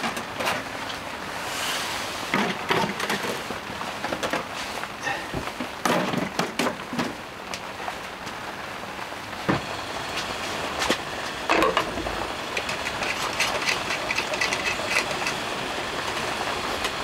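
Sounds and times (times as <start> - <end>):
rain on a tent: 0.0 - 17.0
boards and containers clattering: 2.3 - 7.2, 10.8 - 17.0.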